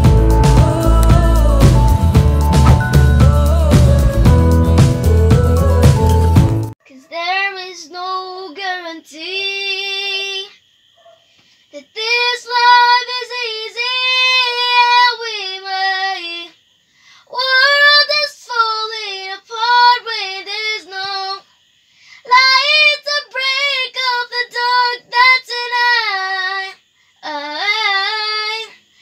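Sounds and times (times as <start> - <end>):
girl singing in high voice: 6.8 - 10.6, 11.7 - 16.6, 17.3 - 21.5, 22.2 - 28.9.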